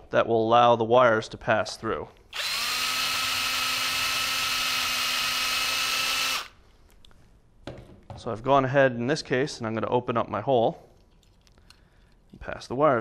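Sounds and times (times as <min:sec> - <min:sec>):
cordless drill boring plastic: 0:02.3 - 0:06.6.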